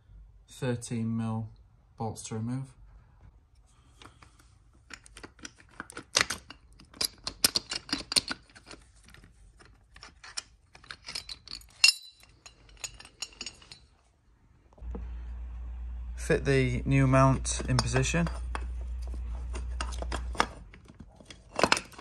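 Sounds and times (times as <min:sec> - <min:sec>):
socket wrench and bolts clinking: 0:10.2 - 0:13.8.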